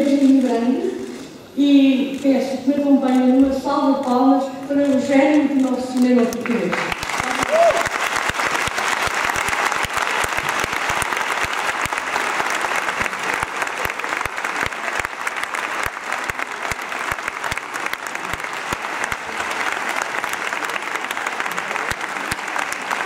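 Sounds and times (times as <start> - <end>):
audience applauding: 6.2 - 23.0.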